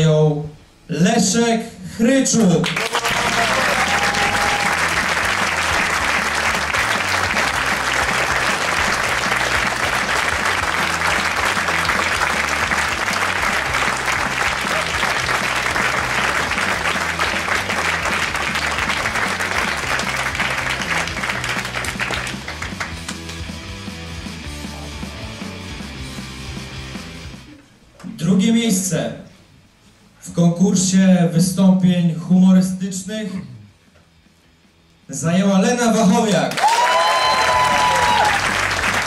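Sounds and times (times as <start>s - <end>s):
audience applauding: 2.6s - 23.5s, 36.5s - 39.0s
background music with bass line: 3.0s - 27.6s.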